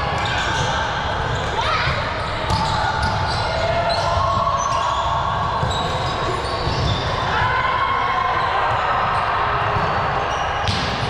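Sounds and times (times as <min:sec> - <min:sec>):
shoes squeaking on court floor: 0:00.0 - 0:07.3.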